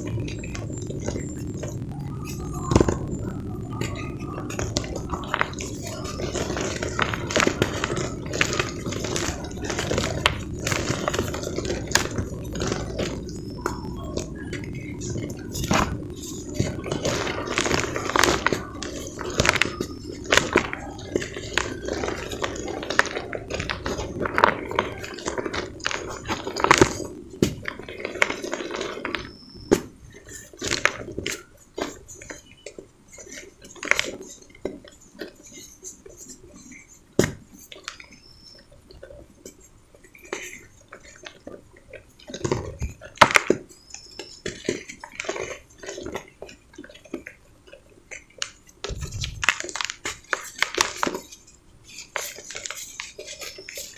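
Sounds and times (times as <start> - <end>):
hands crunching cement powder: 0.0 - 39.2.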